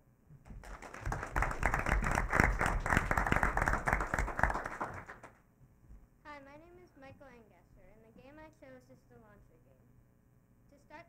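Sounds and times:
people applauding: 0.5 - 5.4.

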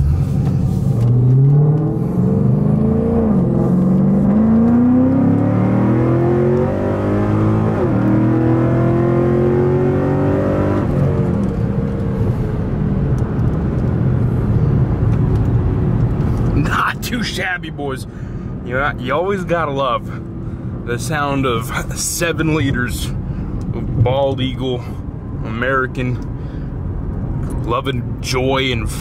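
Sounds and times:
car engine accelerating hard: 0.0 - 17.9.

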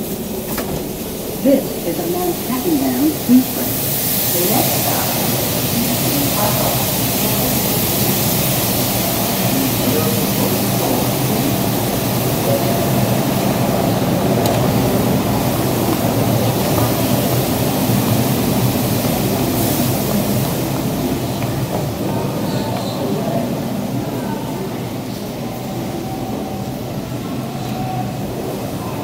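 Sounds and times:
subway train hum and hiss: 0.0 - 29.0.

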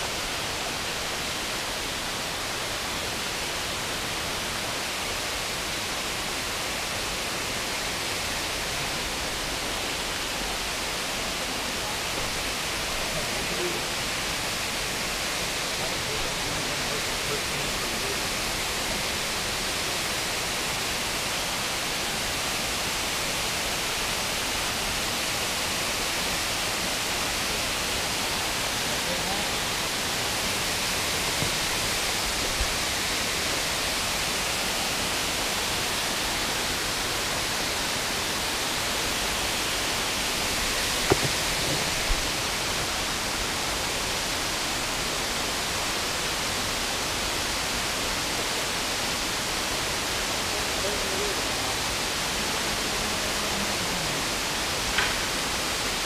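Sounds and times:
creek water rushing: 0.0 - 56.0
brief knocks: 41.0 - 42.0.

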